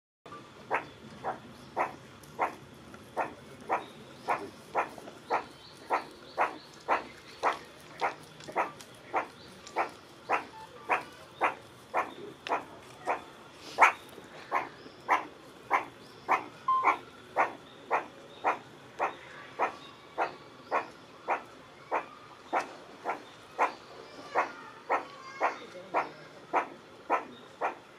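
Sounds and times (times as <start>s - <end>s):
meerkat calling: 0.7s - 2.6s, 3.2s - 27.8s.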